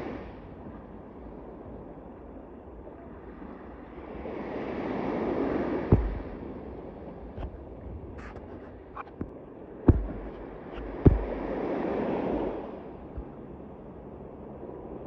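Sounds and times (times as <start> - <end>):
sea waves washing: 0.0 - 15.0
wind buffeting microphone: 0.0 - 15.0
short sharp knocks: 9.9 - 11.5.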